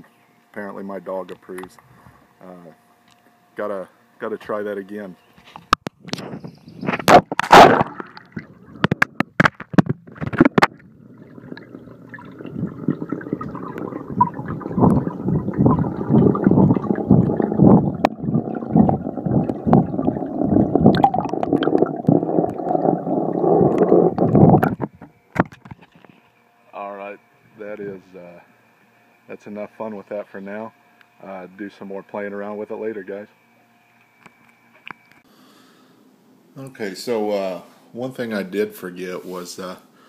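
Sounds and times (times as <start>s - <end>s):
muffled underwater gurgling rumble: 6.1s - 25.1s
loud splash: 7.2s - 8.6s.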